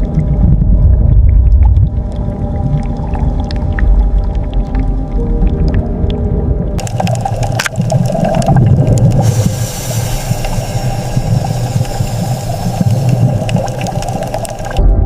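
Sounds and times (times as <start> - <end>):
deep underwater rumble: 0.0 - 15.0
hissing water: 6.8 - 14.8.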